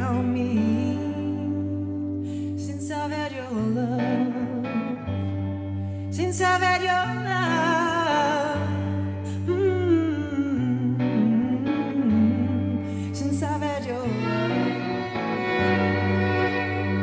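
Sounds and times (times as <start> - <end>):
electric guitar: 0.0 - 17.0
wavering lead melody: 9.9 - 17.0.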